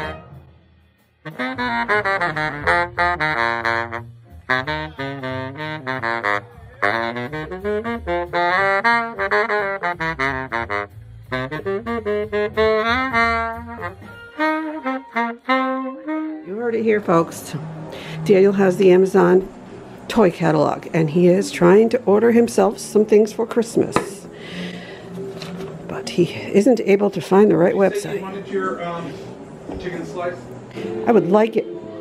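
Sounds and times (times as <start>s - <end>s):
baritone saxophone playing runs: 1.2s - 20.4s.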